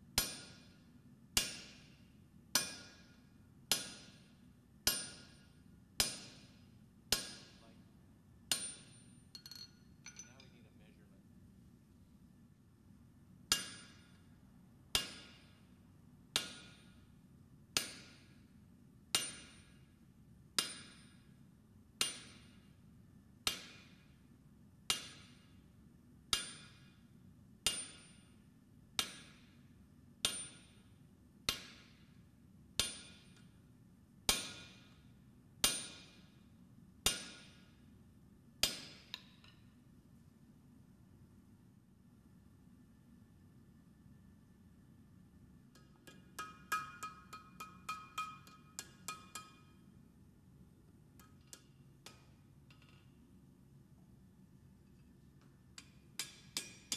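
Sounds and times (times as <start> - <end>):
hammer striking steel on anvil: 0.2 - 0.8, 1.4 - 7.7, 8.5 - 10.6, 13.5 - 14.3, 14.9 - 15.7, 16.3 - 17.1, 17.8 - 18.5, 19.1 - 19.9, 20.6 - 21.3, 22.0 - 22.7, 23.4 - 24.1, 24.9 - 25.6, 26.2 - 27.0, 27.6 - 29.6, 30.2 - 30.9, 31.5 - 32.2, 32.8 - 33.6, 34.3 - 35.0, 35.6 - 36.4, 37.0 - 37.8, 38.6 - 39.7, 45.7 - 50.0, 51.2 - 53.1, 55.8 - 56.9.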